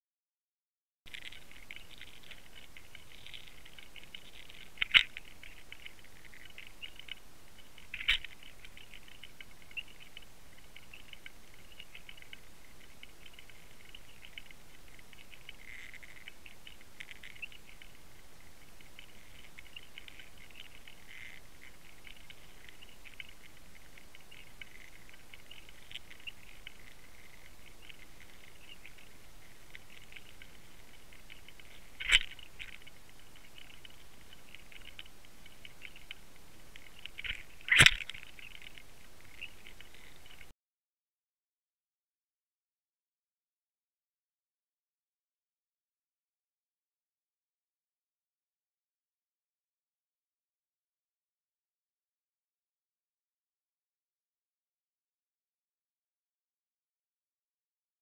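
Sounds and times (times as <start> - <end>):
fine crackle of ticks: 1.1 - 40.5.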